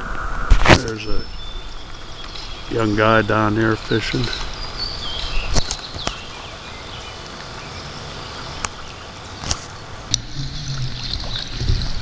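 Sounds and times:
river flowing: 1.5s - 12.0s
low hum: 10.0s - 12.0s.

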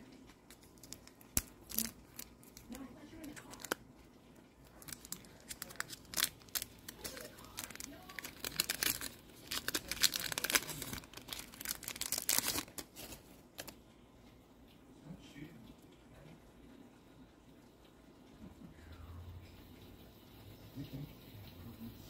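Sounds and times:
wrapper tearing and crinkling: 0.3s - 3.8s, 4.6s - 13.8s.

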